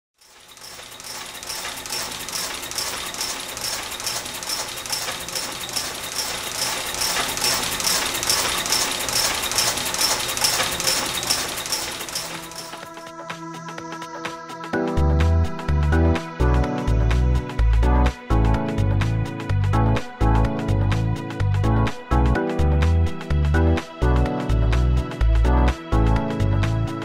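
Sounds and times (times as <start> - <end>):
gears clattering and whirring: 0.2 - 13.0
regular mechanical clicks: 0.2 - 13.0.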